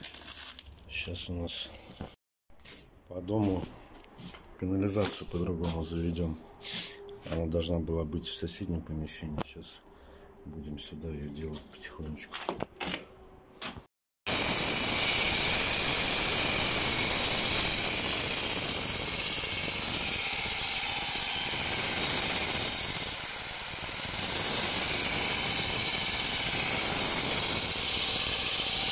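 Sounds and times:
core drill boring concrete: 0:14.3 - 0:28.9.

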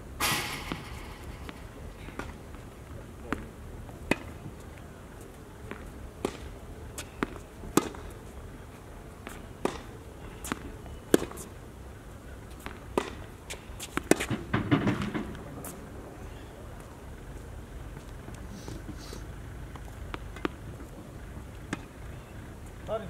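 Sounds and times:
rackets striking tennis ball: 0:00.1 - 0:04.4, 0:05.7 - 0:08.1, 0:09.2 - 0:11.5, 0:12.6 - 0:15.8, 0:19.8 - 0:20.6, 0:21.7 - 0:22.0
tennis ball bouncing: 0:00.2 - 0:04.6, 0:05.7 - 0:08.1, 0:09.2 - 0:11.5, 0:12.5 - 0:15.8, 0:19.8 - 0:22.0.

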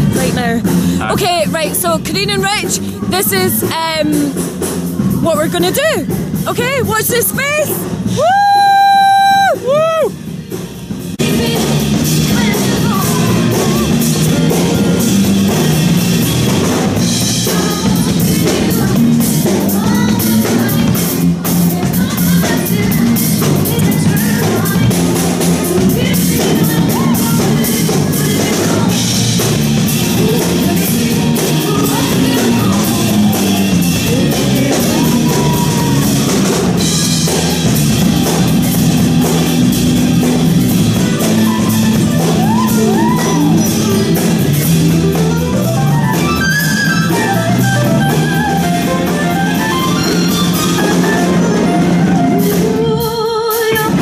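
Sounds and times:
drum kit: 0:00.0 - 0:54.0
person singing: 0:17.4 - 0:37.6, 0:40.8 - 0:54.0.

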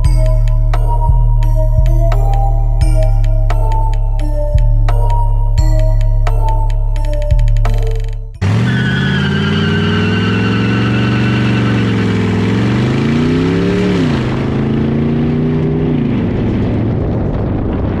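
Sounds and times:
car engine and exhaust: 0:08.4 - 0:18.0.

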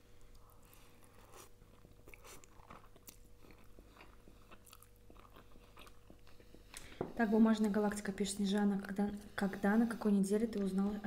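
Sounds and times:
faint steady hum: 0:00.0 - 0:11.0
person chewing: 0:00.2 - 0:07.0.

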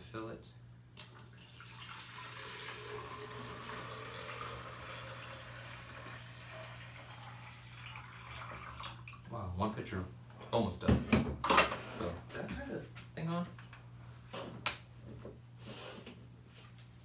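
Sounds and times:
water pouring into plastic reservoir: 0:01.0 - 0:09.2.

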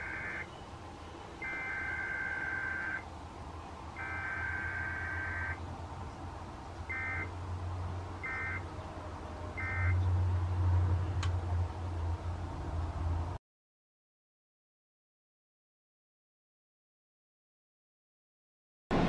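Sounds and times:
buzzy two-tone data warble: 0:01.4 - 0:03.0.

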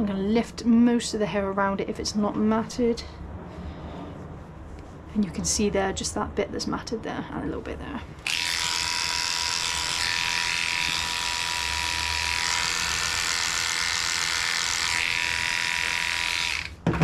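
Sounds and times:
dog grooming clipper running: 0:08.2 - 0:16.8.

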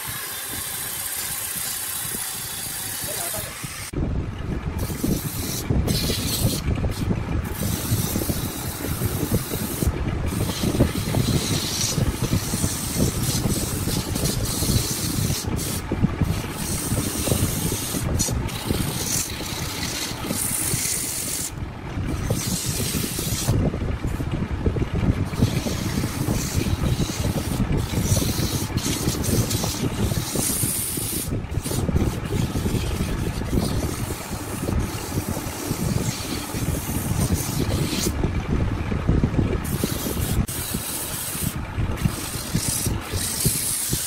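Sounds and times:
abrasive tool rasping on wood: 0:07.5 - 0:21.5, 0:22.2 - 0:23.6, 0:25.3 - 0:38.1, 0:39.7 - 0:44.0.

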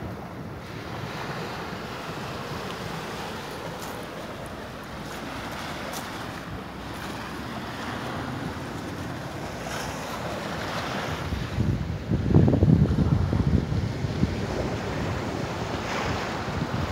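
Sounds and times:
surf breaking on rocks: 0:00.0 - 0:11.8
wind buffeting microphone: 0:00.0 - 0:16.9.

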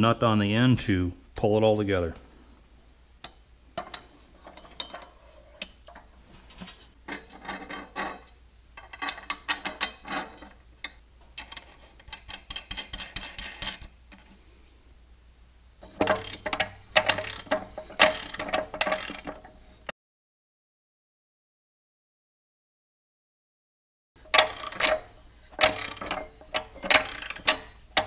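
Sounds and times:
metal clinking: 0:03.2 - 0:14.3, 0:15.8 - 0:19.6, 0:24.2 - 0:28.0
ratchet wrench clicking: 0:16.0 - 0:19.3, 0:24.3 - 0:27.8.

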